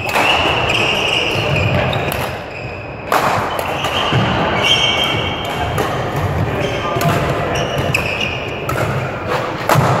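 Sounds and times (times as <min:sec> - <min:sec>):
shoes squeaking on court: 0:00.1 - 0:09.6
racket hitting shuttlecock: 0:03.1 - 0:10.0.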